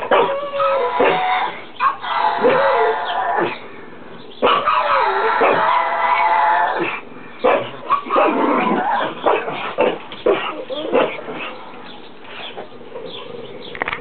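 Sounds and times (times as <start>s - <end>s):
dog howling: 0.0s - 3.5s, 4.4s - 6.9s
dogs yipping and whining: 0.0s - 3.6s, 4.4s - 13.6s.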